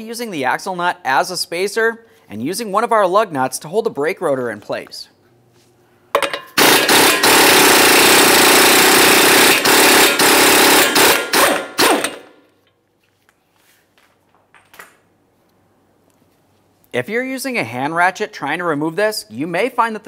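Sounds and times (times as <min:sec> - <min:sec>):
impact wrench hammering: 0:06.1 - 0:12.4.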